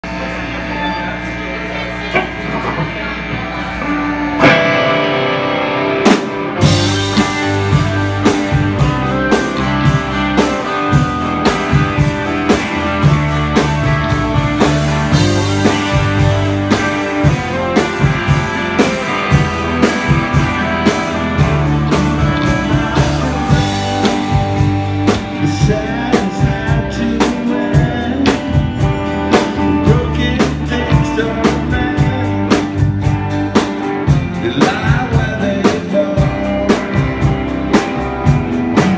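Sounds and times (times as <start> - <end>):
bass guitar: 0.0 - 38.9
drum kit: 0.0 - 38.9
electric guitars: 0.0 - 38.9
person singing: 21.8 - 28.8, 29.6 - 32.8, 34.3 - 37.1.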